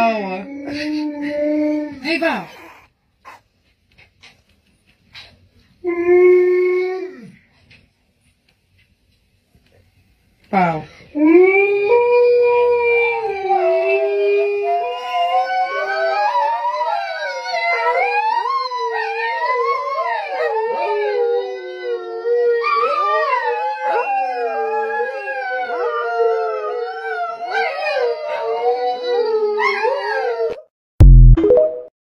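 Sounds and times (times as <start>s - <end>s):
dogs howling: 11.2s - 30.6s.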